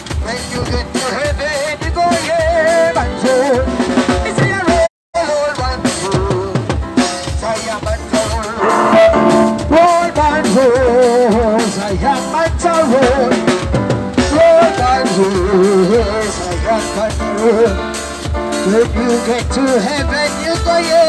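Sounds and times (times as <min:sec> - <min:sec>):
drums keeping a steady beat: 0:00.0 - 0:21.0
keyboard playing: 0:00.0 - 0:21.0
person singing: 0:14.3 - 0:18.0.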